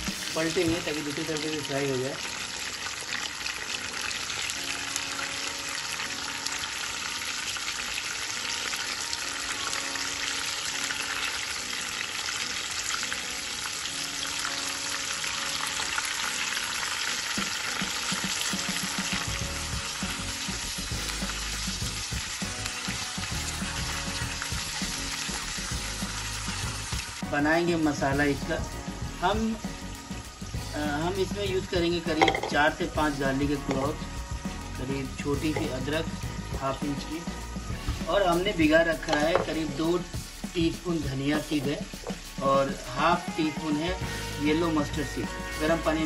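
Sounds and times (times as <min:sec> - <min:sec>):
fish sizzling in hot oil: 0:00.0 - 0:46.0.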